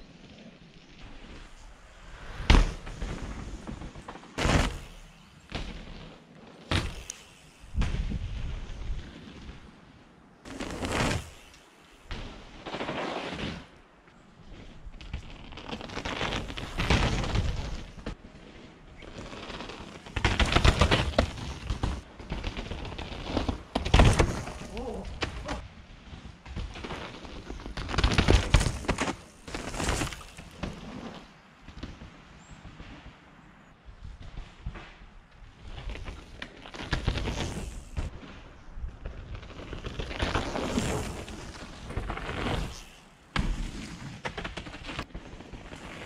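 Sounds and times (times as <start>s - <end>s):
tyres rolling on dirt: 0.0s - 46.0s
mountain bike clattering past: 2.2s - 9.8s, 14.5s - 25.4s, 26.0s - 32.6s, 35.6s - 46.0s
bike landing thuds: 2.4s - 9.6s, 23.7s - 25.5s, 43.3s - 45.6s.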